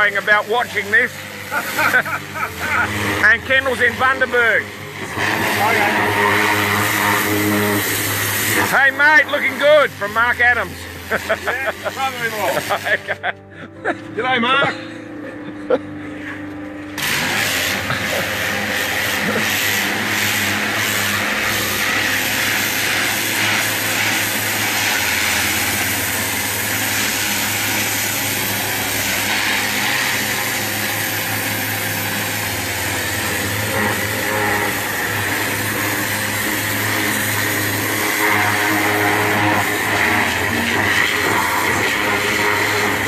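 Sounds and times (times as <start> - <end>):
pressure washer spray hissing: 0.0 - 13.3, 17.0 - 43.0
pressure washer motor running: 0.0 - 43.0.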